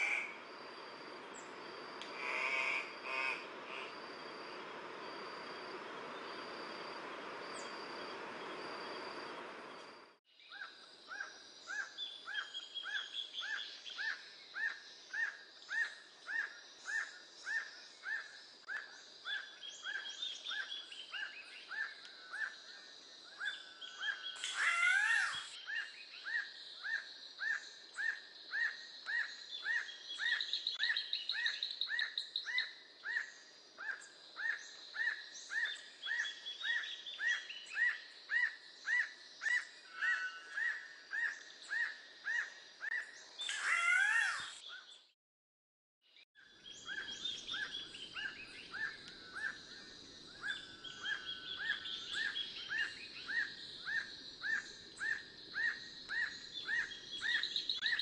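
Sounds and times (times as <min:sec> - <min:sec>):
loud rising bird call: 0:02.1 - 0:05.3, 0:24.4 - 0:25.6, 0:43.4 - 0:44.6
higher bird chirps: 0:24.3 - 0:25.6, 0:43.4 - 0:44.8.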